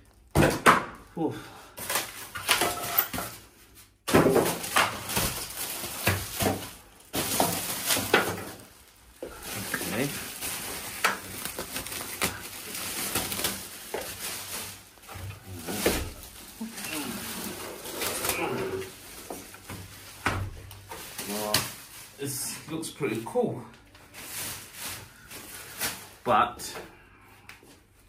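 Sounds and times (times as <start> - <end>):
cardboard rustling and scraping: 9.2 - 21.8.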